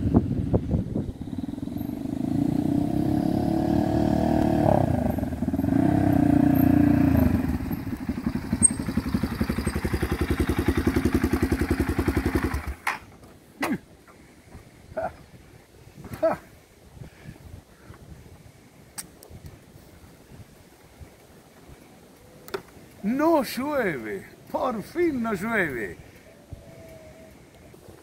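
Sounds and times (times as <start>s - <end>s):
motorcycle engine revving and idling: 0.0s - 12.9s.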